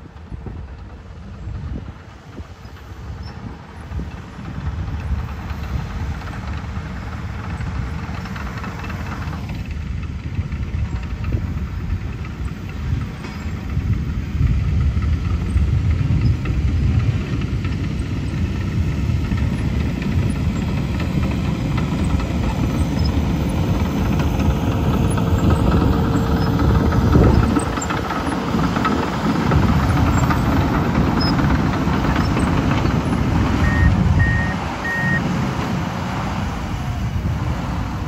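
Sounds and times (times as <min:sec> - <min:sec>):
heavy diesel engines rumbling: 0:00.0 - 0:38.0
backup alarm beeps: 0:33.6 - 0:35.3.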